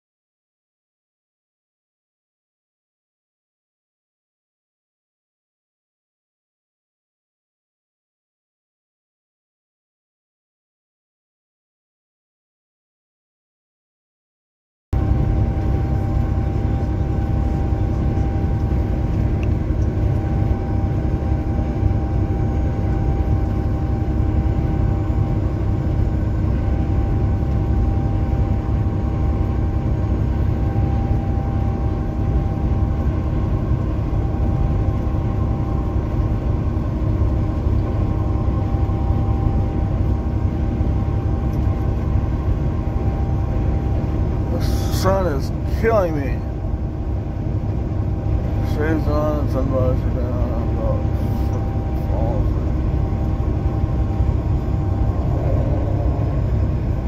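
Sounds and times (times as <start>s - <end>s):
faint constant hum: 15.0s - 57.0s
truck engine drone: 15.0s - 57.0s
road rumble: 30.2s - 57.0s.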